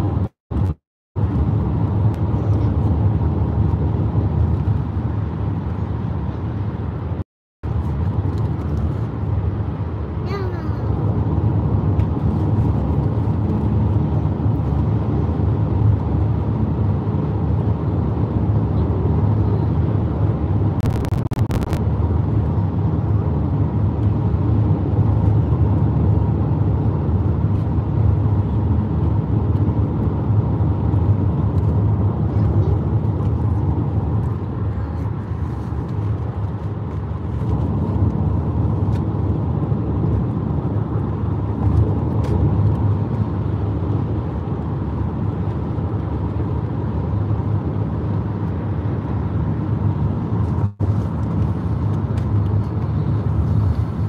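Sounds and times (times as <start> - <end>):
car cabin road and engine rumble: 0.0 - 54.0
clicks: 20.8 - 21.8.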